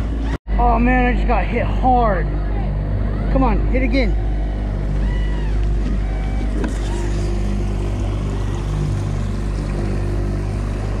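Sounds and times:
outboard motor humming: 2.3s - 11.0s.

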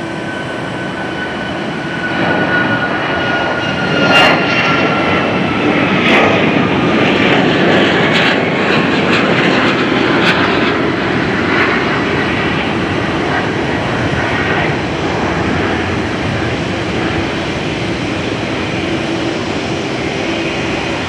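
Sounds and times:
jet engines running: 0.0s - 21.0s.

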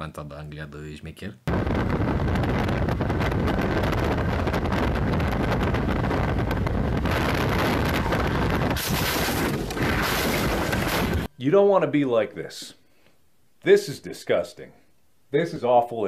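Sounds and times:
wind buffeting microphone: 1.5s - 11.3s.

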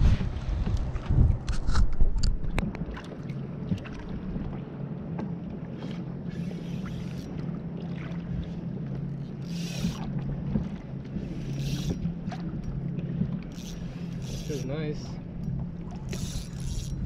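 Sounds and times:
wind buffeting microphone: 0.0s - 3.0s
small outboard motor humming: 0.0s - 17.0s.

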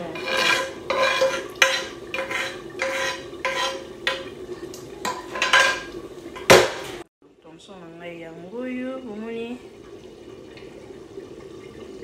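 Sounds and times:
metal spoon scraping frying pan: 0.0s - 4.4s, 5.0s - 6.6s.

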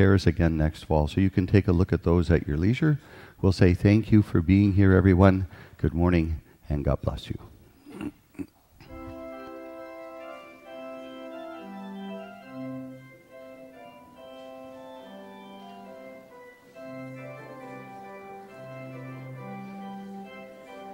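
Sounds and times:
church organ chords: 8.8s - 20.9s.

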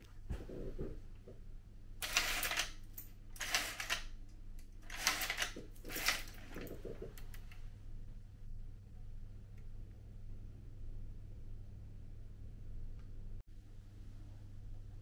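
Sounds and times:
pull cord rasping: 4.8s - 7.6s.

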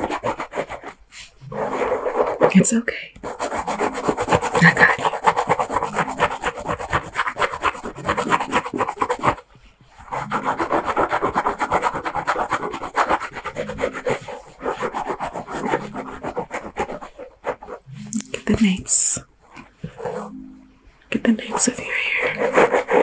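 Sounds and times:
fingertips scratching through hair: 0.0s - 20.5s, 21.2s - 23.0s.

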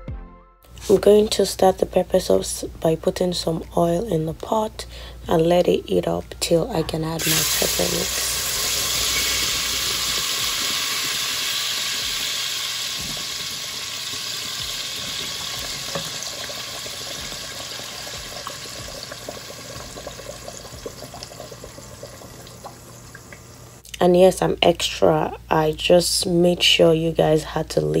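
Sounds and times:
oil crackling and popping: 7.2s - 23.5s
puree sizzling in hot oil: 7.2s - 23.8s.

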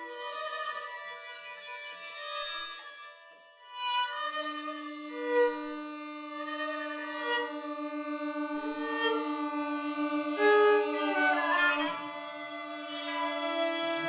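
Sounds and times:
string trio playing chamber music: 4.0s - 14.0s.

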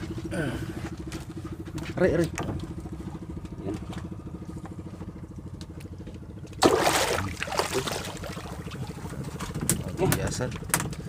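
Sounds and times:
boat engine running: 0.0s - 11.0s
loud water splash: 6.6s - 8.9s.

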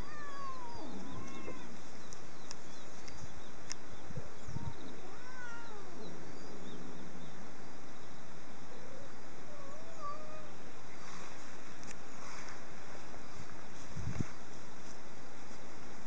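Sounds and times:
cats meowing: 0.0s - 1.8s, 4.8s - 6.3s, 8.9s - 10.6s.

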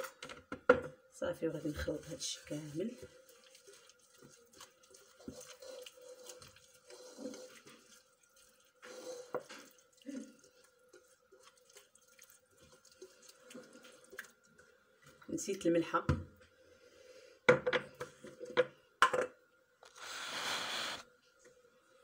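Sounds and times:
hand squelching wet marinade: 1.8s - 14.4s.

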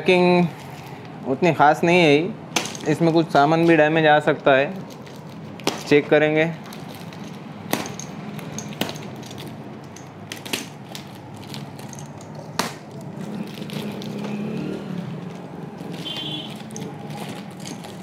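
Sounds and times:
box cutter slitting tape: 10.2s - 18.0s
cardboard tearing: 10.3s - 18.0s.

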